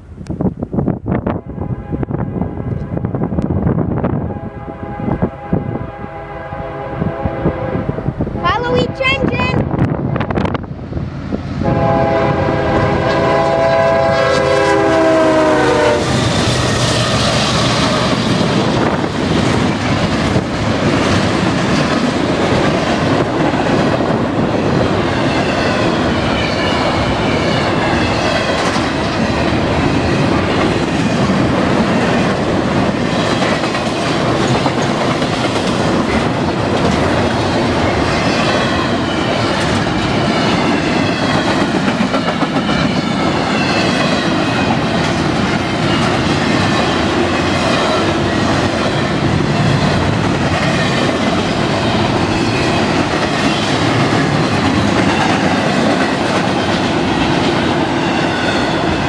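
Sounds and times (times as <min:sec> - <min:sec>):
freight train rumbling past: 0:00.0 - 0:59.0
locomotive air horn: 0:04.2 - 0:08.0, 0:11.6 - 0:16.2.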